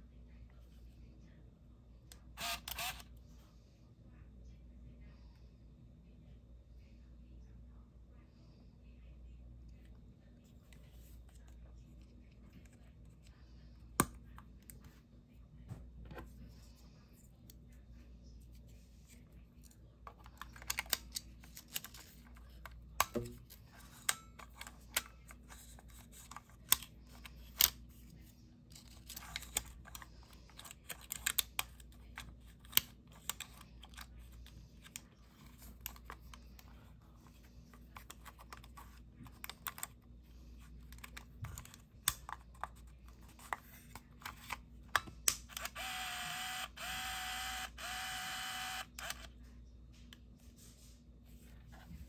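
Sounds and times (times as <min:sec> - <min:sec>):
camera motor whirring: 0:02.4 - 0:03.0, 0:45.5 - 0:49.3.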